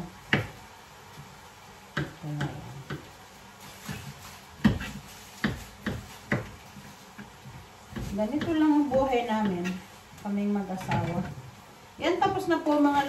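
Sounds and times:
knife tapping cutting board: 0:04.6 - 0:06.6, 0:07.9 - 0:09.7.

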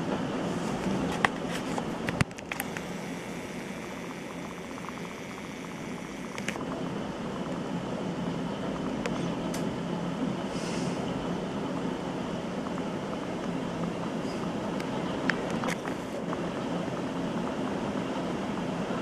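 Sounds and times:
sharp clicks: 0:02.1 - 0:06.6.

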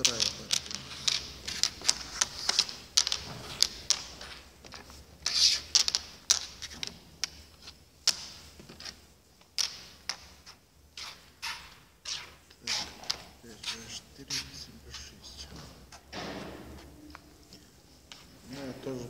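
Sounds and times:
draughts pieces clicking on board: 0:00.0 - 0:13.8.

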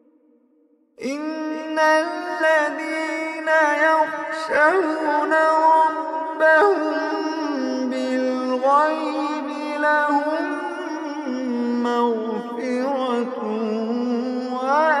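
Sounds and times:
man chanting recitation: 0:01.0 - 0:15.0.

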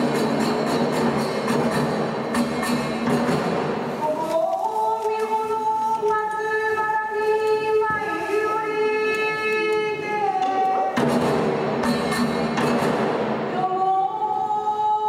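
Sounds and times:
small hand cymbals beat: 0:00.0 - 0:04.0.

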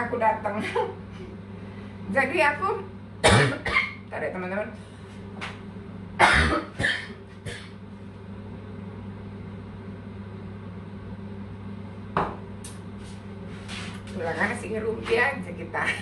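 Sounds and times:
steady low hum: 0:00.0 - 0:16.0
woman coughing: 0:03.2 - 0:04.0, 0:06.2 - 0:07.8.

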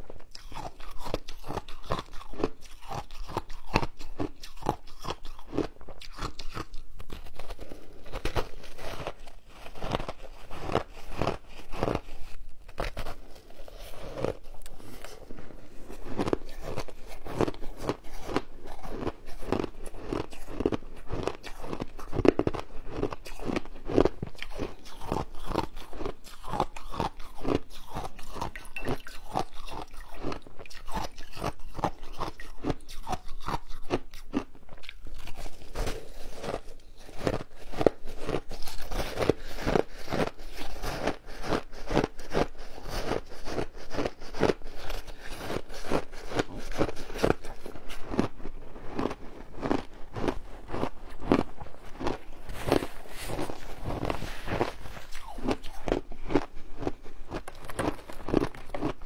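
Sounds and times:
crunching shaved ice: 0:12.7 - 0:59.0.

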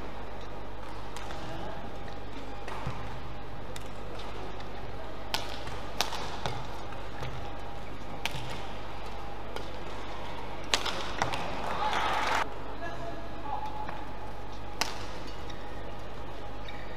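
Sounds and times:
low hall hum: 0:00.0 - 0:16.9
racket hitting shuttlecock: 0:00.8 - 0:12.0, 0:14.8 - 0:15.6.

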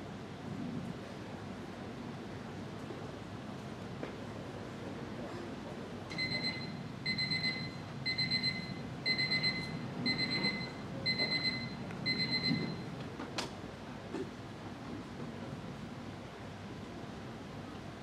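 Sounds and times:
alarm clock beeping: 0:06.2 - 0:12.8.

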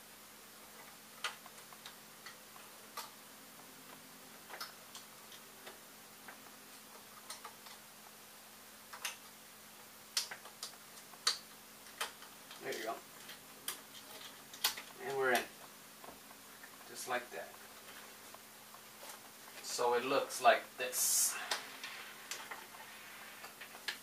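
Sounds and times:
faint hum: 0:00.0 - 0:24.0
plastic parts clicking: 0:10.2 - 0:15.5.

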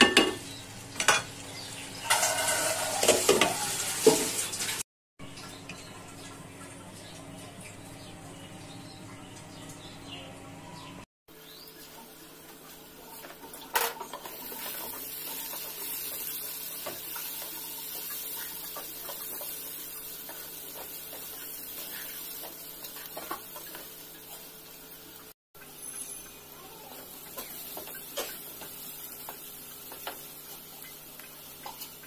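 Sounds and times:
food sizzling: 0:00.0 - 0:04.8, 0:11.3 - 0:32.0
spatula scraping frying pan: 0:02.0 - 0:04.5.

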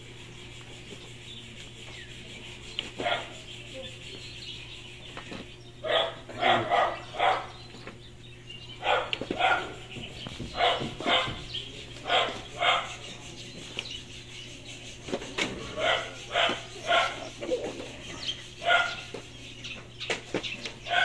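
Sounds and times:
steady low hum: 0:00.0 - 0:21.0
dog barking: 0:03.0 - 0:03.4, 0:05.8 - 0:07.6, 0:08.8 - 0:09.9, 0:10.5 - 0:11.4, 0:12.0 - 0:13.0, 0:15.7 - 0:17.4, 0:18.6 - 0:19.1.

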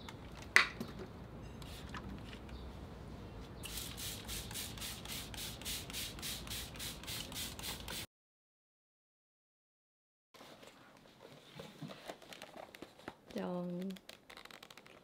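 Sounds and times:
spray bottle squirting: 0:03.6 - 0:08.1.

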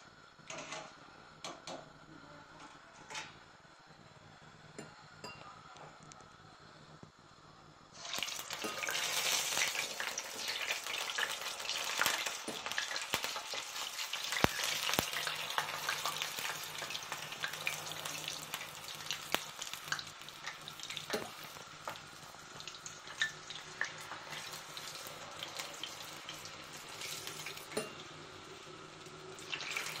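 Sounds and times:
dough frying in hot oil: 0:07.9 - 0:30.0.

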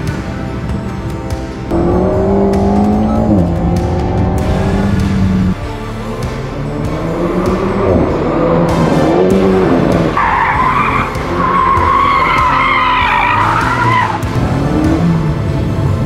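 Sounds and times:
car engine running hard: 0:00.0 - 0:16.0
tyre squeal: 0:10.2 - 0:14.2.

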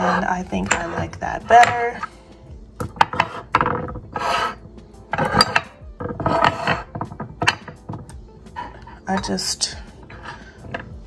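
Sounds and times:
bottles clinking on marble: 0:00.0 - 0:02.2, 0:02.8 - 0:08.1
canisters scraping on marble: 0:00.0 - 0:11.0.

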